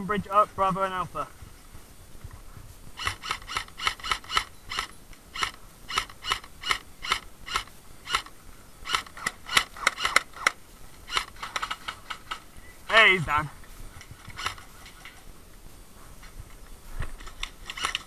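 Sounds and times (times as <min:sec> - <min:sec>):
airsoft gun firing single shots: 0:03.0 - 0:12.5.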